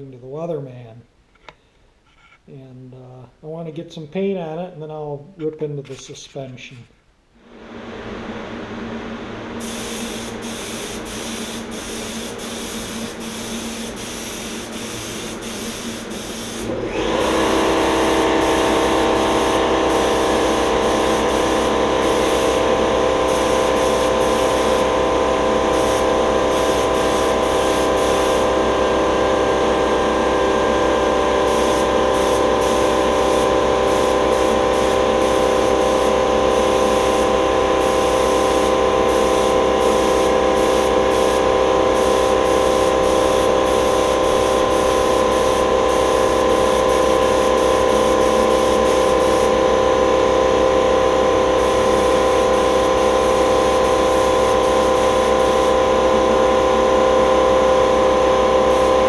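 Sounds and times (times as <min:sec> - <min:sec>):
air compressor droning: 0:07.4 - 0:59.0
paint spray gun hissing: 0:09.6 - 0:29.2, 0:30.4 - 0:56.8, 0:58.6 - 0:59.0.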